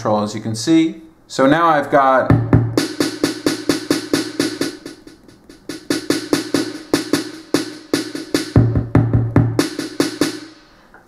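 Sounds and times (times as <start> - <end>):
drum machine beat: 2.2 - 10.8.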